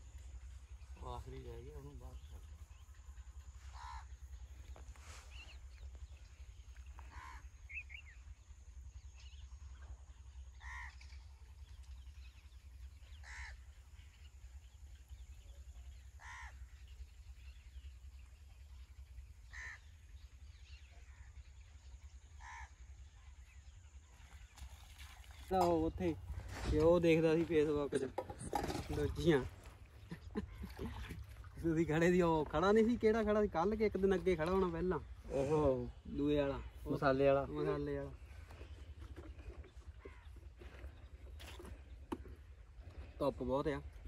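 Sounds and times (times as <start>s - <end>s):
crow cawing faintly: 3.7s - 4.8s, 7.0s - 7.6s, 10.6s - 11.0s, 13.2s - 13.6s, 16.2s - 16.7s, 19.5s - 19.9s, 22.4s - 22.8s, 39.9s - 40.9s.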